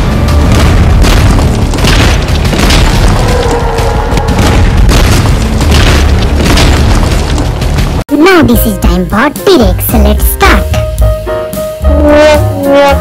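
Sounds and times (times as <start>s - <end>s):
heavy booms: 0.0s - 8.0s
soundtrack music: 7.3s - 13.0s.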